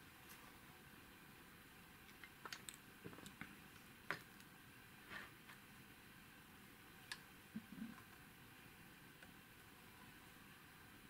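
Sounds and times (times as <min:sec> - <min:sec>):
soft rustle: 0:00.2 - 0:00.7.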